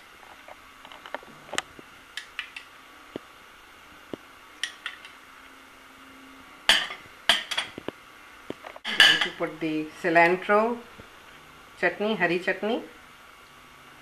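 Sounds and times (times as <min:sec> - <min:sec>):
metal spoon clinking on glass bowl: 0:08.9 - 0:09.4.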